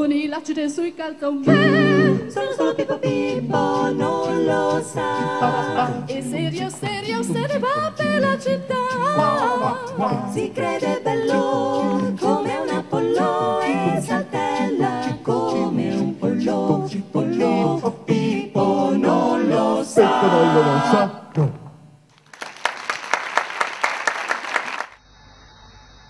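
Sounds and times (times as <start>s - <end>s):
vocal group singing in harmony: 1.2s - 21.5s
audience applause: 22.2s - 25.0s.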